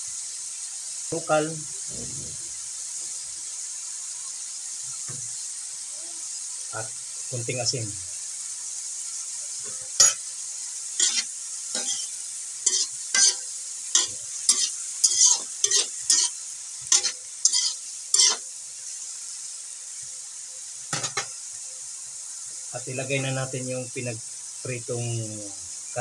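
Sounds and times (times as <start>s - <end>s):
frying sizzle: 0.0s - 26.0s
metal spatula scraping a wok: 9.7s - 10.3s, 11.0s - 18.5s.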